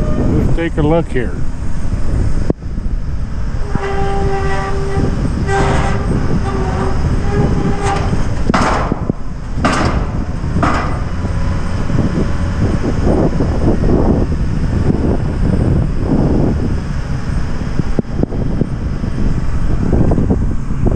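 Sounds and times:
squealing horn-like tone: 0.0 - 0.5, 3.5 - 11.1
heavy machinery low rumble: 0.0 - 20.9.

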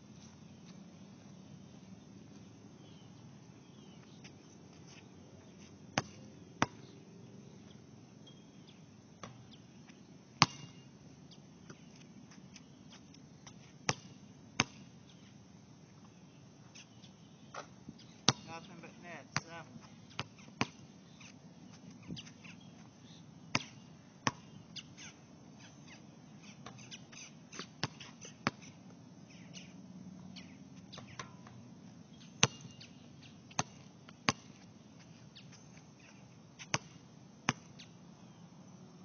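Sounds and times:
basketball bouncing on court: 18.3 - 20.8, 32.4 - 32.8, 33.5 - 34.6, 36.7 - 37.7.

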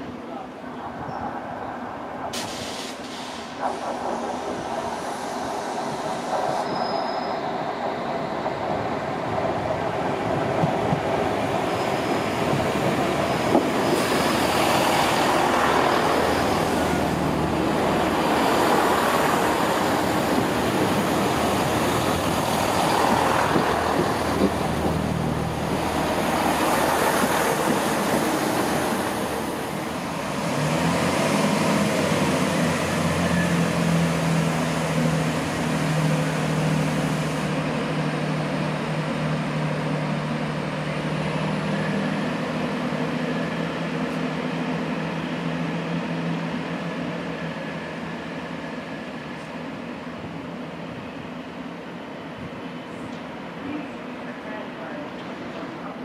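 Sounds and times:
diesel train pulling away: 1.6 - 56.0.

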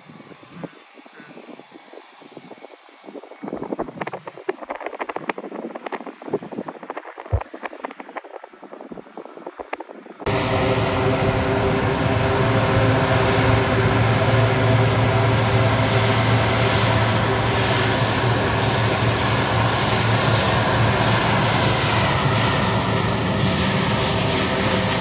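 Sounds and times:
airliner engines humming: 0.0 - 25.0.

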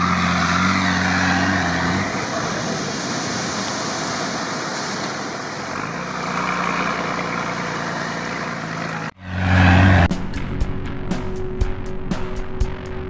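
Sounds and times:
water splashing from wheels: 0.0 - 9.0
truck engine drone: 0.0 - 13.0.

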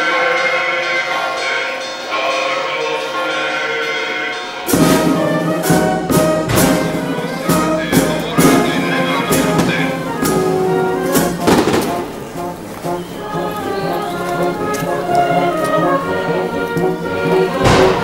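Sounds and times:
bells ringing: 0.0 - 18.0
brass band playing: 4.6 - 18.0
drum and cymbal strikes: 4.7 - 13.0.

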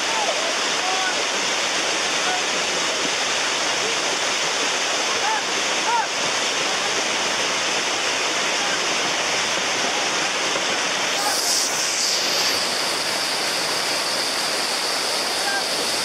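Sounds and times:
floodwater rushing over rocks: 0.0 - 16.0
brief hiss: 11.1 - 16.0.

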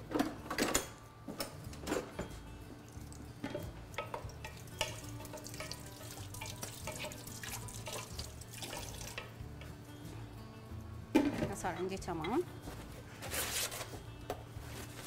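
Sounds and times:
wooden spoon stirring in a pot: 4.0 - 9.3
water running at a sink: 4.8 - 9.3.

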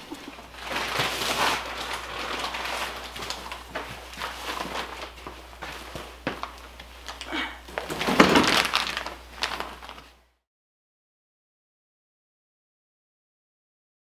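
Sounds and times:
bags rustling: 0.0 - 10.2
low steady hum: 0.0 - 10.4.

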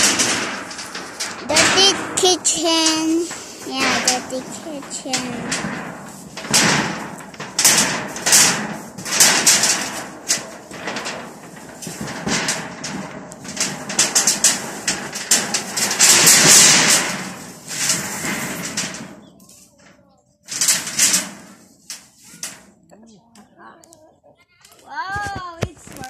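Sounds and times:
roofing sheet scraping and rattling: 0.0 - 22.7
roofing sheet knocks: 2.9 - 19.2.

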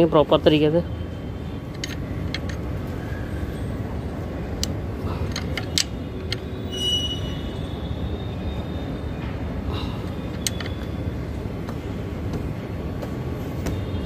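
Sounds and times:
spanner clicking on bolt: 1.7 - 2.6, 4.6 - 6.5, 10.3 - 10.9.

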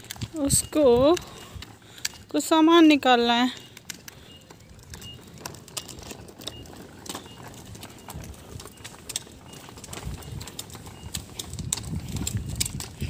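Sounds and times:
plastic tricycle rolling on asphalt: 0.0 - 13.0.

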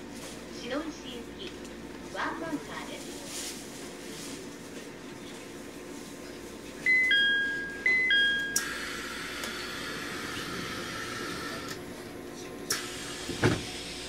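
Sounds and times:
low train hum: 0.0 - 14.0
two-note train door chime: 6.9 - 9.2
train doors sliding: 12.7 - 14.0.

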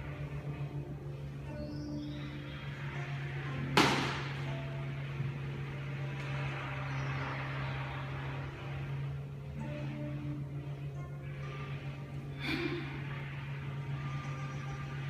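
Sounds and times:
steady low hum: 0.0 - 15.0
sharp smack with echo: 3.8 - 4.3.

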